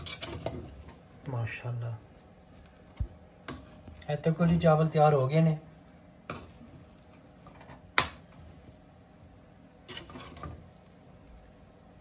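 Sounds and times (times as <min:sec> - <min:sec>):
spoon scraping rice in pot: 0:00.0 - 0:00.8, 0:09.8 - 0:10.7.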